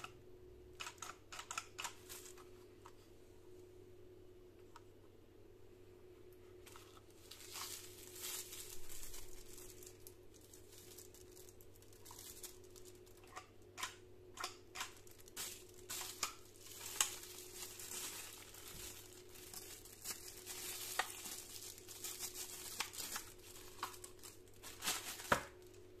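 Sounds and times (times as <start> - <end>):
plastic wrapping crinkling: 1.0 - 2.6, 6.6 - 26.0.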